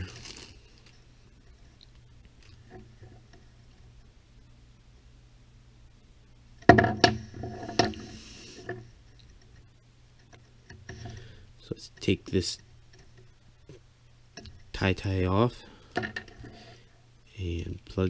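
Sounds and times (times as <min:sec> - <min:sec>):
plastic objects knocking on wood: 0:06.6 - 0:08.0.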